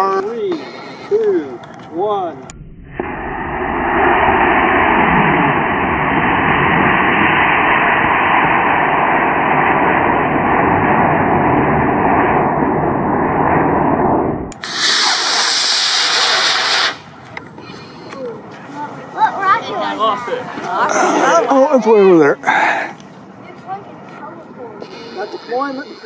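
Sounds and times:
rocket motor hissing: 14.5 - 17.4.

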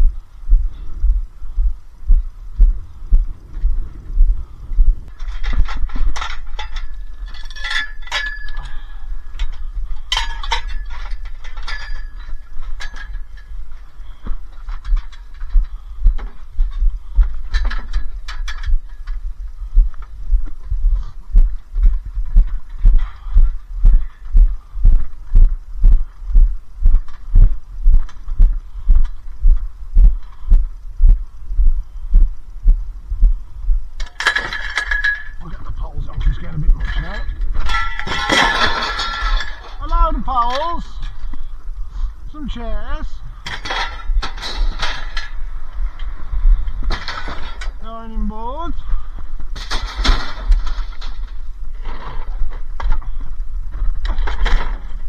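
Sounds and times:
heavy footsteps thudding: 0.0 - 6.2, 18.7 - 33.9
low rumble: 0.0 - 11.2, 13.4 - 34.1, 34.7 - 39.8
clatter with ringing tone: 5.1 - 13.6, 34.0 - 39.8
metal chairs clinking and clanking: 5.1 - 19.2, 34.0 - 41.3, 43.4 - 47.8.

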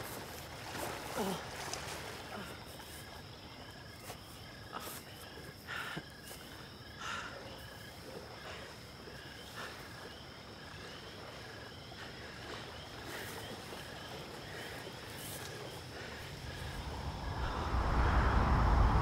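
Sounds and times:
insect chirps: 0.0 - 19.0
insects droning: 0.0 - 19.0
low rumble: 16.2 - 19.0.

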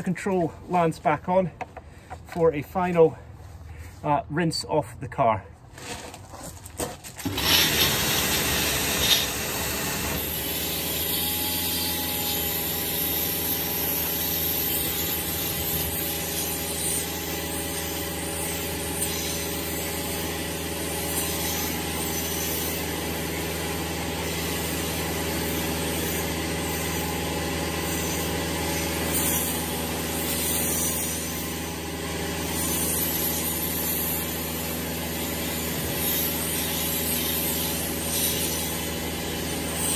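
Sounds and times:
high-pressure water jet hissing: 7.2 - 39.9
pressure washer running: 7.2 - 39.9.

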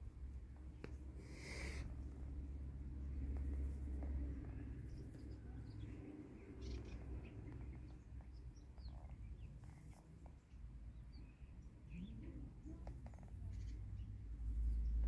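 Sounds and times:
low background rumble: 0.0 - 15.0
small birds chirping: 3.2 - 15.0.

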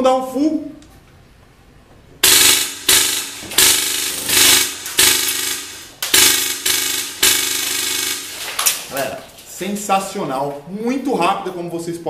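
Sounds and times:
airsoft rifle firing full auto: 2.2 - 8.6.

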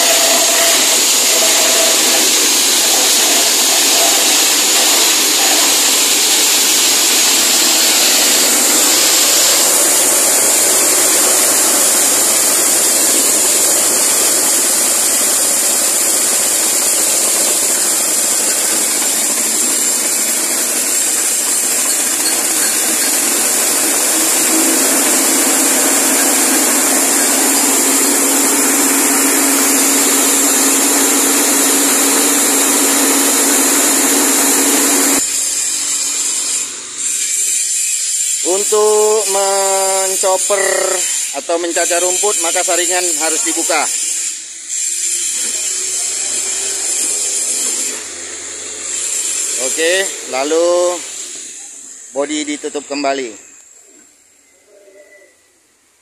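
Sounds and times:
stalks being shredded: 0.0 - 35.2
chopper engine running: 0.0 - 35.8.

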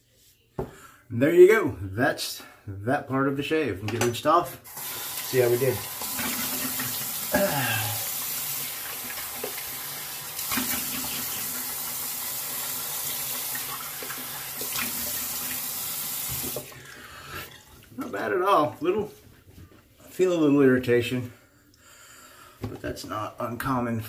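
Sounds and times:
sink tap running: 4.7 - 16.8.

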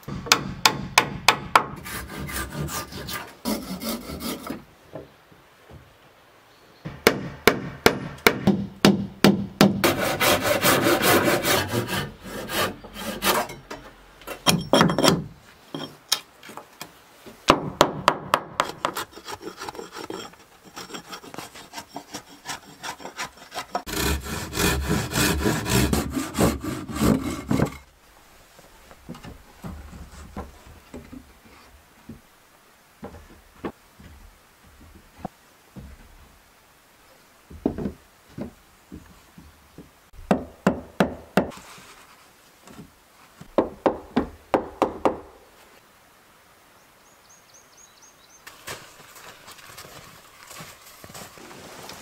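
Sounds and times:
hatchet scraping wood: 1.4 - 4.6, 9.7 - 16.3, 18.5 - 27.9.

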